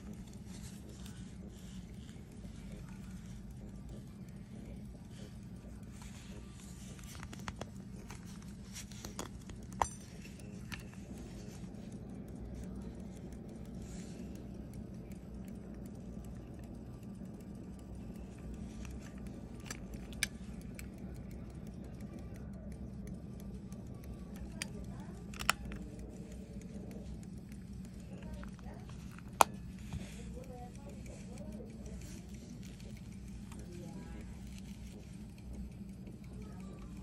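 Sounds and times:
steady low hum: 0.0 - 37.0
watch cover snapping open: 25.2 - 25.8.

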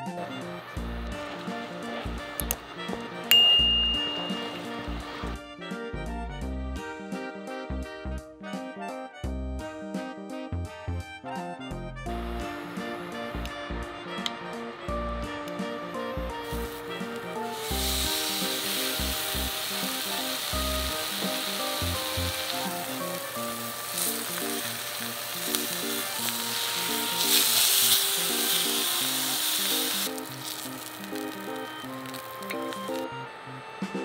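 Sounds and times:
meat sizzling in hot oil: 0.0 - 5.4, 12.2 - 33.1
background music: 0.0 - 34.0.

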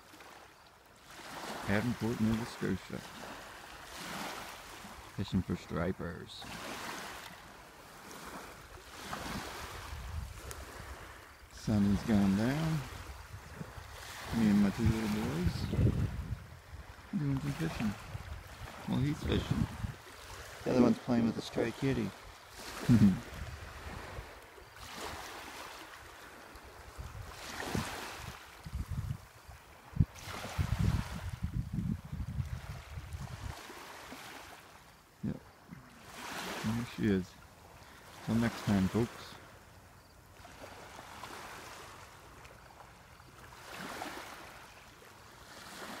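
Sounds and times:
waves washing onto stony beach: 0.0 - 31.5, 32.3 - 39.6, 40.4 - 46.0
wind buffeting microphone: 9.3 - 11.2, 12.9 - 17.0, 17.8 - 21.0, 22.9 - 24.3, 26.9 - 33.6.

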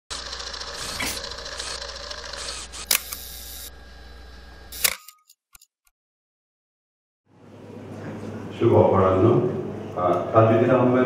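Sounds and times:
sharp mechanical clicks: 0.1 - 3.3, 4.8 - 5.7.

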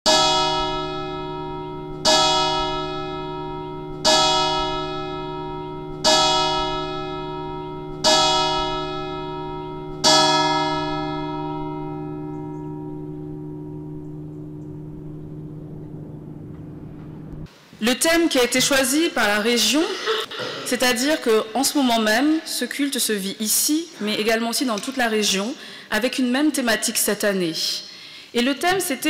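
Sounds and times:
church bell tolling: 0.1 - 17.5.

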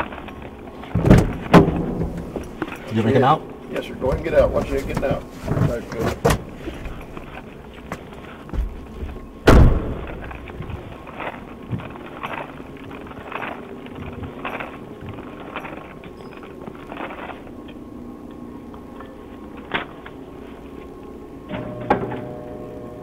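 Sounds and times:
knocks and handling noises: 0.0 - 2.9, 3.5 - 17.5
thump: 9.5 - 10.1.

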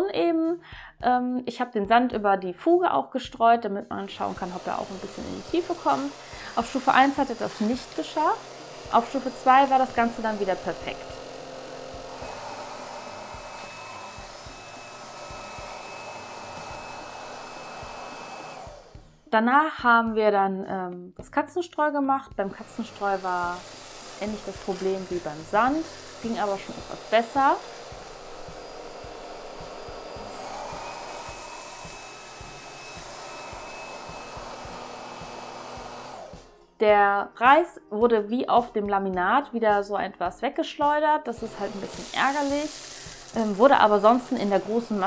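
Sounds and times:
stick vacuum running: 4.1 - 19.2, 22.5 - 36.5, 41.4 - 45.0.

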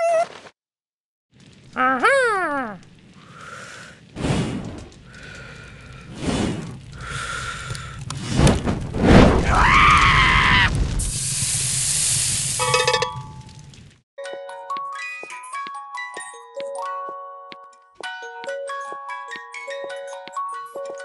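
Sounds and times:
cartoon character yelling: 1.8 - 2.8
steady hissing: 2.8 - 9.2, 10.6 - 13.0
whooshes: 4.1 - 5.0, 6.0 - 7.0, 8.0 - 9.7.

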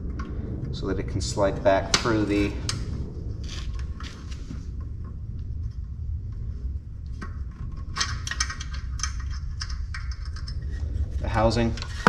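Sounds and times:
steady low hum: 0.0 - 12.0
metallic clicks and rattles: 7.2 - 10.9.

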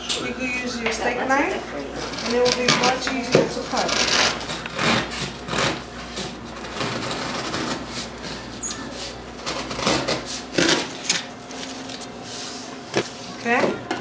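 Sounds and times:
knife sawing through cardboard: 2.0 - 10.9.

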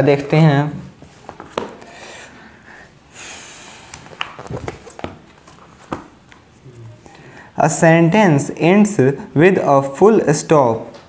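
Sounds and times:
paper pages rustling: 3.9 - 6.6.

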